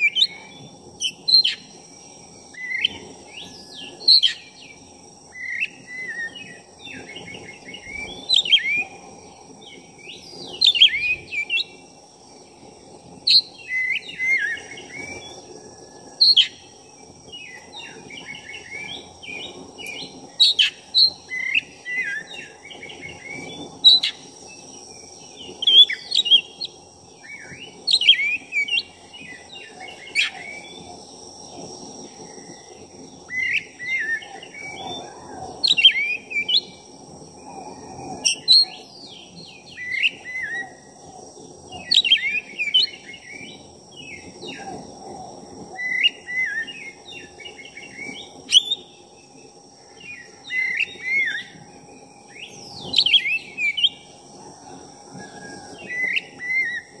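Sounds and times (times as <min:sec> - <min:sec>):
songbird whistling and chattering: 0:00.0 - 0:01.8, 0:02.5 - 0:09.0, 0:09.7 - 0:11.8, 0:13.2 - 0:15.4, 0:25.4 - 0:30.8, 0:33.3 - 0:36.8.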